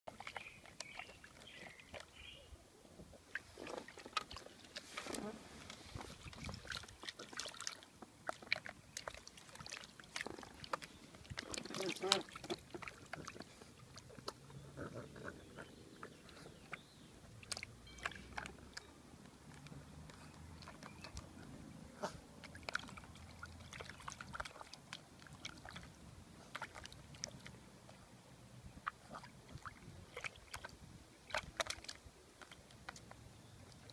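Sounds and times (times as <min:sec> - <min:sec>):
water splashing in tub: 0:03.3 - 0:14.4, 0:22.4 - 0:27.6, 0:28.8 - 0:32.6.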